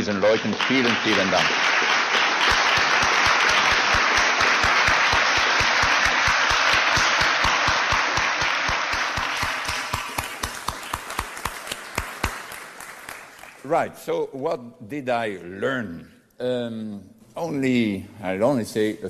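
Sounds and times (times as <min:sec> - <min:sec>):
audience applauding: 0:00.0 - 0:13.8
close hands clapping: 0:00.0 - 0:13.8.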